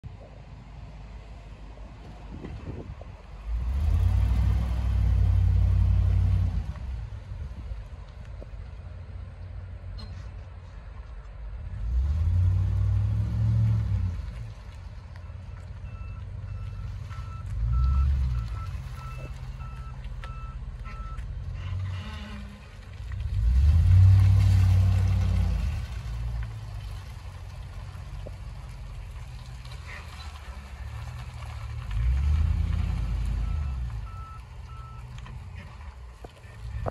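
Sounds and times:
truck engine accelerating: 0:00.0 - 0:36.9
truck reversing alarm beeping: 0:15.2 - 0:21.3, 0:33.3 - 0:35.2.

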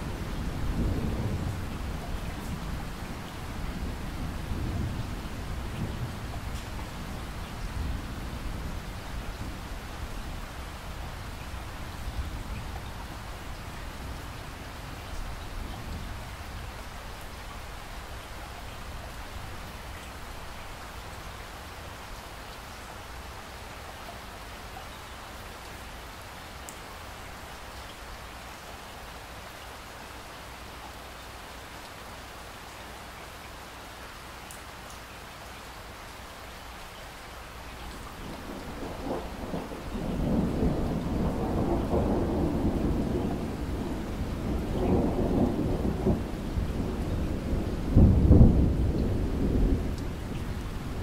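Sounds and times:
rain falling: 0:00.0 - 0:51.0
rolling thunder: 0:38.1 - 0:51.0.

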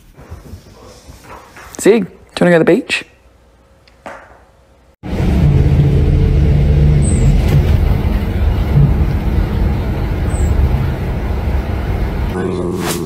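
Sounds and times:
bus engine drone: 0:05.0 - 0:13.0
road noise: 0:05.0 - 0:13.0.

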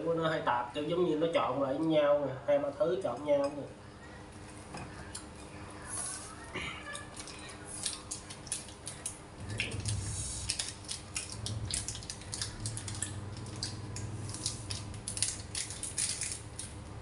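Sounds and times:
candy wrapper crinkling: 0:06.0 - 0:16.8.

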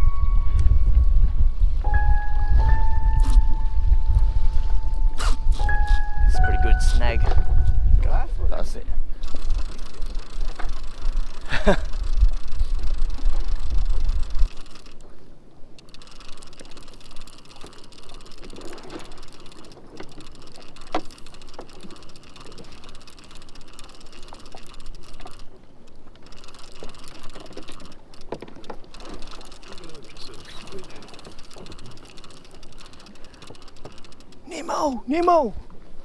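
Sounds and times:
wind buffeting microphone: 0:00.0 - 0:15.0
small waves lapping at a hull: 0:09.0 - 0:36.0.

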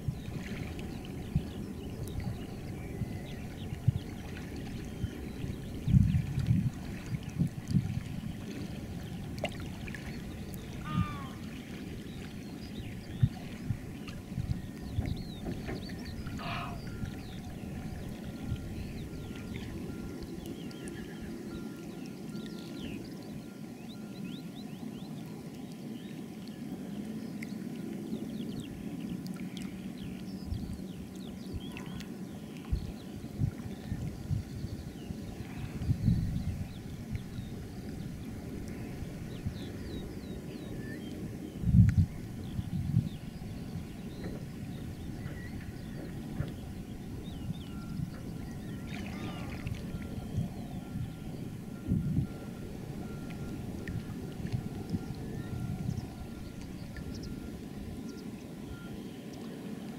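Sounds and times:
water sloshing around wading person: 0:00.0 - 0:25.1, 0:43.2 - 0:58.7
low rumble with faint hum: 0:00.0 - 0:59.9.

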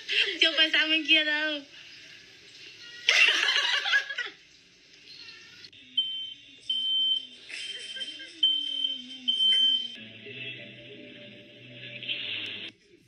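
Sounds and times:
smoke alarm beeping: 0:05.9 - 0:10.0.

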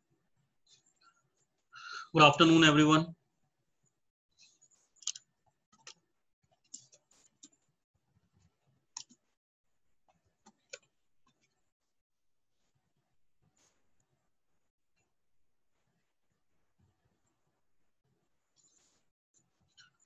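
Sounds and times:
faint irregular clicks: 0:04.6 - 0:07.7, 0:08.4 - 0:09.4, 0:10.0 - 0:11.6.

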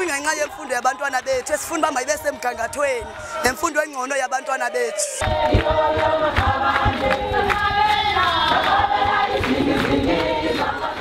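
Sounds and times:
crowd singing in chorus: 0:04.8 - 0:11.0
low thumps: 0:05.2 - 0:10.0.

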